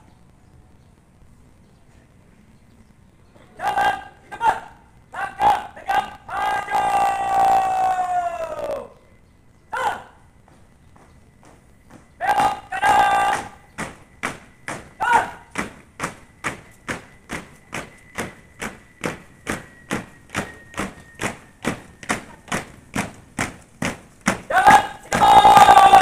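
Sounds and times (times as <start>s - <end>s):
marching footsteps on pavement: 9.4s - 26.0s.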